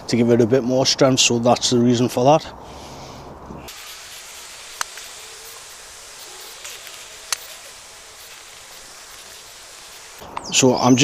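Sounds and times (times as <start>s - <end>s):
steady hiss: 0.0s - 11.0s
sharp click: 6.6s - 7.5s.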